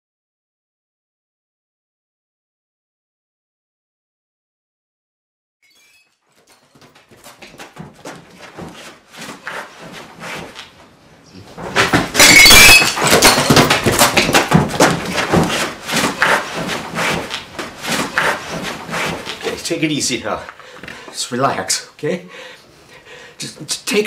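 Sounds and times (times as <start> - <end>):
irregular knocks and thuds: 6.7 - 10.9, 11.5 - 12.2, 13.0 - 19.4.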